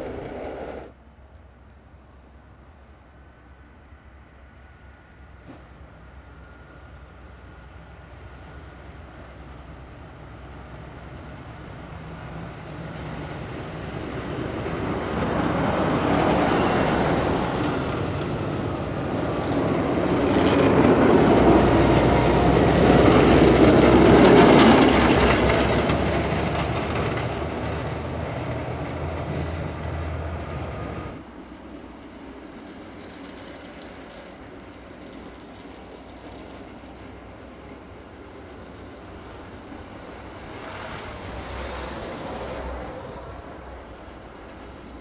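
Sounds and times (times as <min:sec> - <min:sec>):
low engine drone: 0:00.0 - 0:00.9
plow blades scraping snow: 0:00.0 - 0:00.9, 0:12.4 - 0:31.2, 0:38.8 - 0:44.8.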